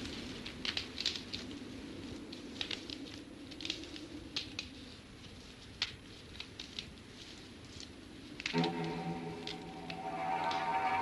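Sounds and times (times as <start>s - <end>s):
light crackles and ticks: 0.0s - 11.0s
faint low drone: 8.5s - 11.0s.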